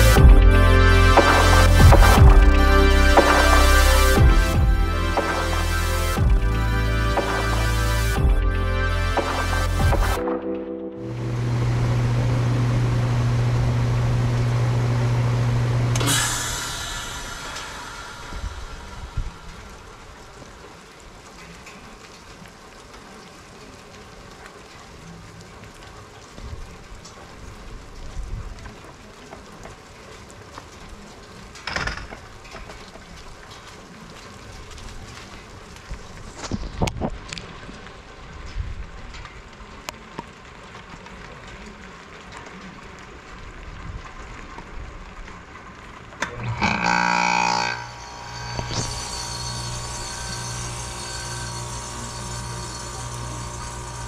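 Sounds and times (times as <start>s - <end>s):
steady rain falling: 0.0s - 54.0s
heat pump running hum: 11.2s - 19.4s, 46.2s - 54.0s.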